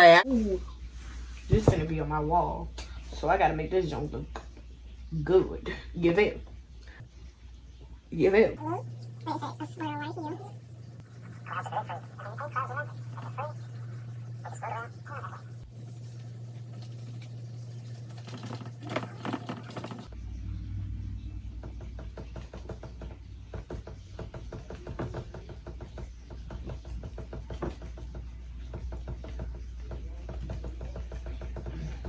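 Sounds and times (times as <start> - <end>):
low hum: 19.8 - 22.0
paint brush tapping canvas: 21.6 - 32.0.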